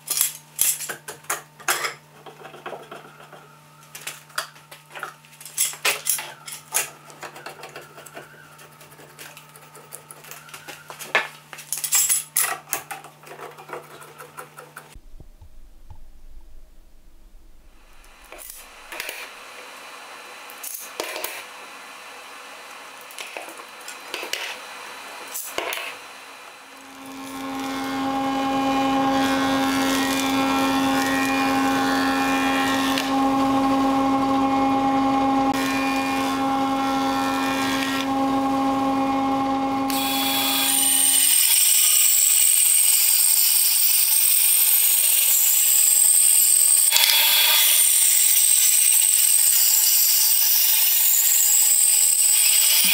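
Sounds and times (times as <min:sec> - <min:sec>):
bandsaw cutting wood: 0:05.4 - 0:11.3, 0:17.9 - 0:52.9
planer motor hum: 0:17.8 - 0:45.2.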